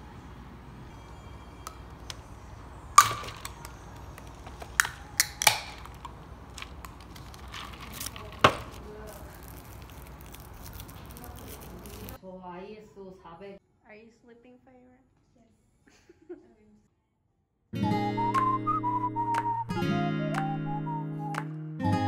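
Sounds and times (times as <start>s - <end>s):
can pull-tab clicks and cracks: 3.0s - 6.1s.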